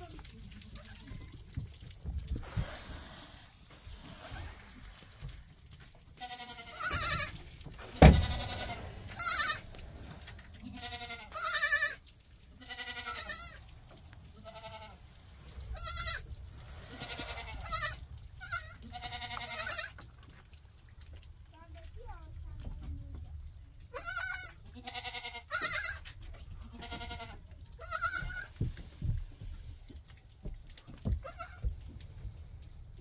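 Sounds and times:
young goats bleating: 0.6s - 1.5s, 6.2s - 15.0s, 15.7s - 16.3s, 16.9s - 20.0s, 23.9s - 28.6s, 31.2s - 31.7s
sharp thump: 7.8s - 8.6s.

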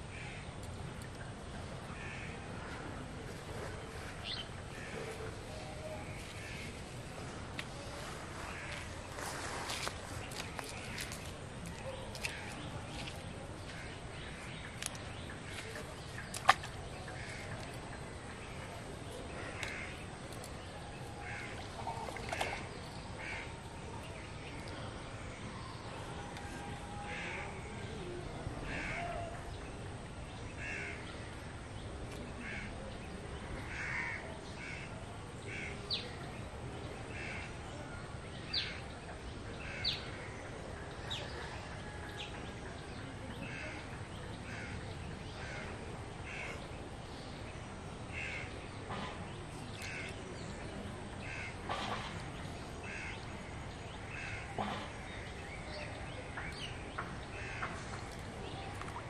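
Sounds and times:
outdoor background hiss: 0.0s - 59.0s
crows cawing: 33.7s - 34.8s, 51.2s - 51.6s, 52.9s - 53.2s.

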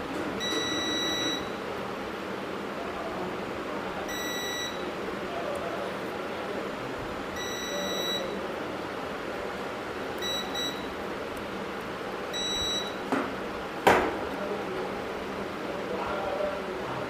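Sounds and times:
multimeter beeping: 0.4s - 1.6s, 4.1s - 4.8s, 7.4s - 8.4s, 10.2s - 11.0s, 12.3s - 13.0s.

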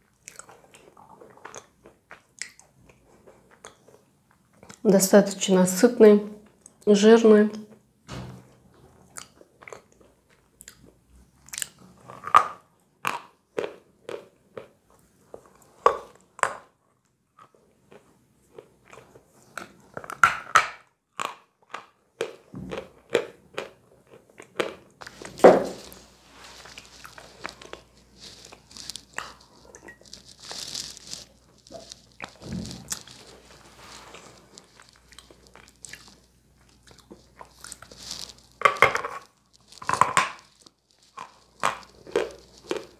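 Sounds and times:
person crunching and chewing chalk: 0.0s - 4.8s, 9.0s - 42.9s.

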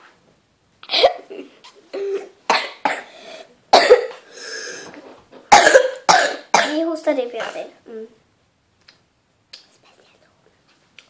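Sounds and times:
girl coughing: 0.8s - 4.6s, 5.5s - 7.7s.

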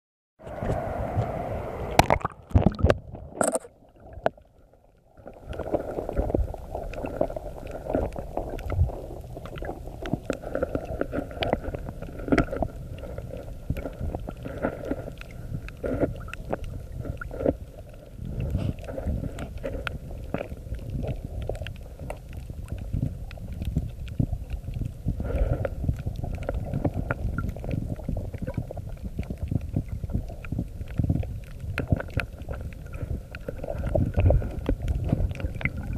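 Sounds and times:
low rumble of moving water: 0.4s - 35.9s
clicks and crackles: 1.9s - 4.6s, 5.2s - 35.9s.

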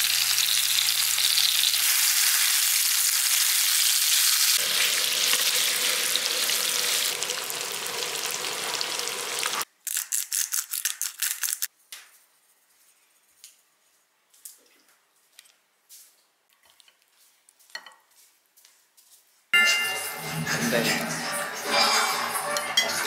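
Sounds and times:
food sizzling in frying pan: 0.0s - 9.7s.

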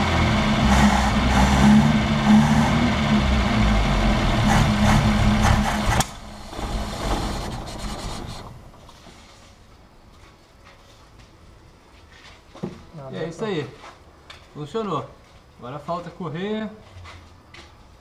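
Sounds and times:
car engine idling: 0.0s - 9.0s.

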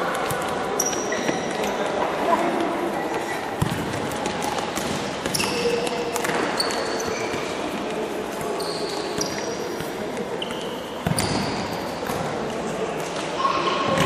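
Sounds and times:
shoes squeaking on floor: 0.7s - 2.0s, 5.2s - 12.0s.

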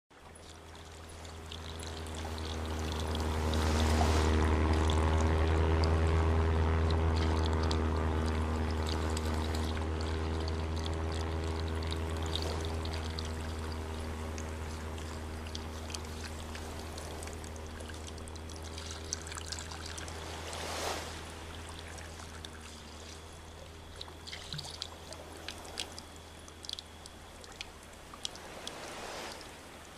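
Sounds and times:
steady low hum: 0.1s - 29.9s
light ticks: 23.9s - 28.8s.

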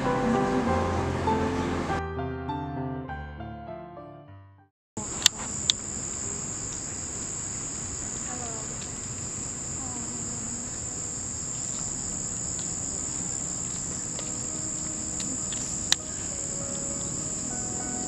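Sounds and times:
crickets chirping: 5.0s - 18.0s.

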